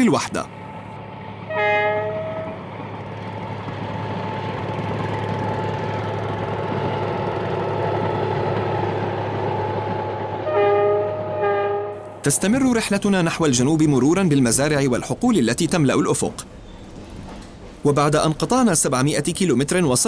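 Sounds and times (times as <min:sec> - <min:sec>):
train running: 0:00.0 - 0:20.0
train horn: 0:01.5 - 0:02.6, 0:10.4 - 0:12.1.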